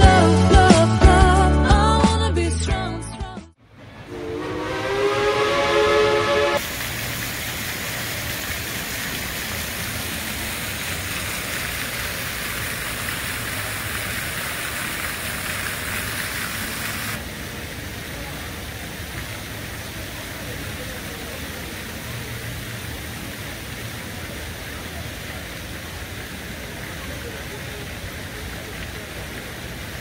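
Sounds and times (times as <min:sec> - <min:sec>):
steady background noise: 0:03.6 - 0:30.0
train whistle: 0:04.0 - 0:06.6
fountain spraying into pond: 0:05.7 - 0:30.0.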